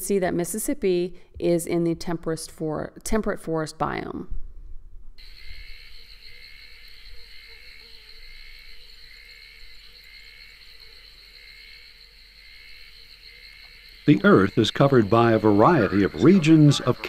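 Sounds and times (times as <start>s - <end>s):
high insect buzz: 5.2s - 17.0s
repeating insect chirp: 5.2s - 17.0s.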